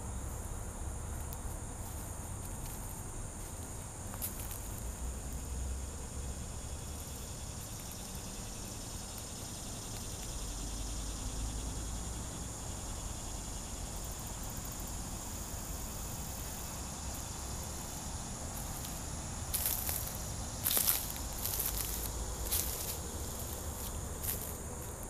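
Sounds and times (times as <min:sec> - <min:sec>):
insects buzzing: 0:00.0 - 0:25.0
rustling footsteps: 0:01.1 - 0:05.0, 0:16.4 - 0:25.0.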